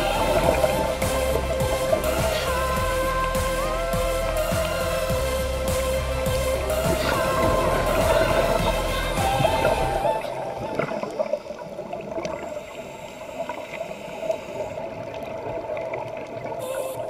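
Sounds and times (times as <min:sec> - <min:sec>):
background music: 0:00.0 - 0:11.0
underwater rushing and gurgling water: 0:00.0 - 0:17.0.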